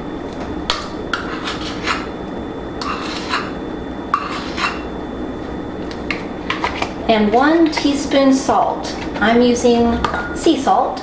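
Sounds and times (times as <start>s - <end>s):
spoon scraping against can rim: 1.1s - 2.1s, 2.8s - 4.9s.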